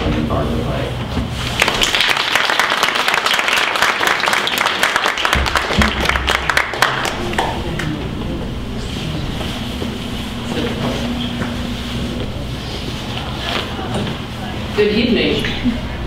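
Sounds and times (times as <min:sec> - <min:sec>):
audience applauding: 0:01.5 - 0:08.2.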